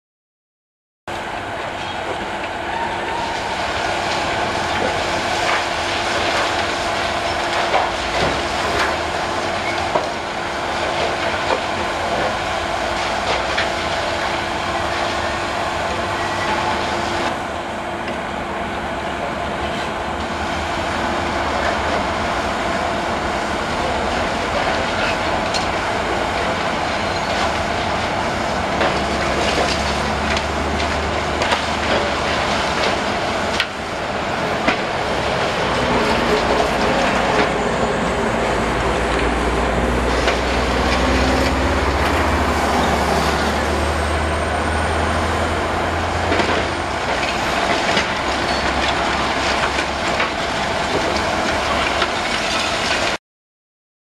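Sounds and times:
concrete crunching and clattering: 23.8 - 37.7, 46.2 - 53.2.

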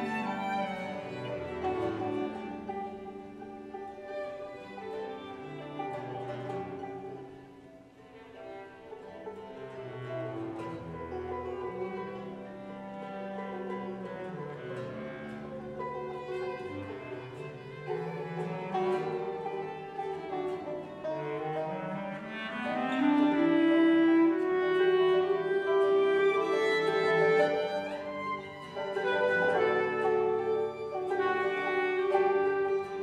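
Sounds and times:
banjo: 0.0 - 33.0
violin: 0.0 - 33.0
bass clarinet: 18.6 - 33.0.

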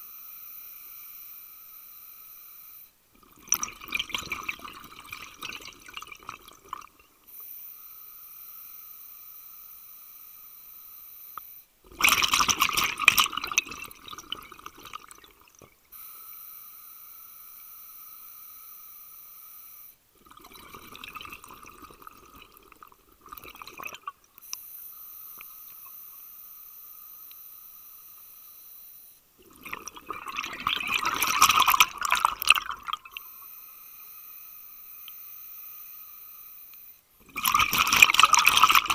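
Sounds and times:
bubbling exhale: 29.4 - 33.3, 37.2 - 38.9.

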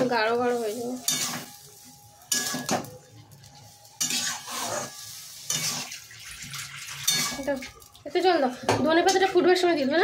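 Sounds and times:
food sizzling: 0.0 - 10.0
spatula scraping metal pan: 3.9 - 6.0.

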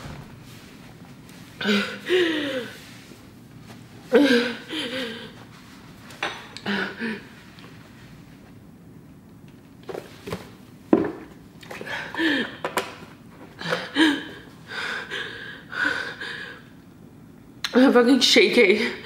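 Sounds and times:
woman breathing hard: 1.6 - 3.0, 4.1 - 5.4, 11.8 - 12.7, 13.6 - 16.7.

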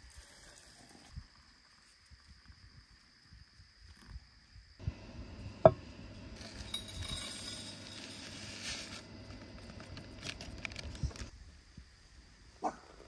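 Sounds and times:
paper packet rustling: 7.8 - 11.3.

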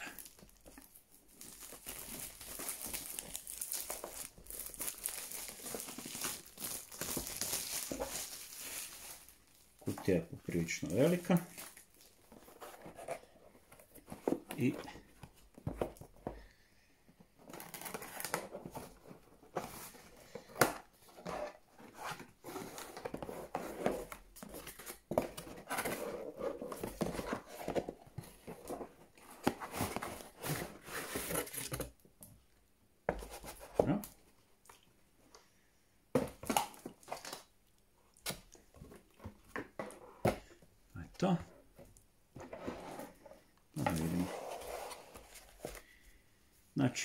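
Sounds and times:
plastic wrap crinkling and tearing: 0.0 - 12.6, 43.8 - 45.9
cardboard rustling and scraping: 10.9 - 16.4, 17.4 - 31.9, 41.6 - 45.8.

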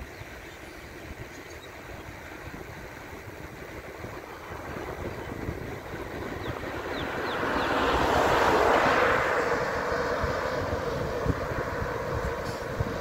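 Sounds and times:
wind on microphone: 0.9 - 13.0
truck passing: 1.8 - 13.0.

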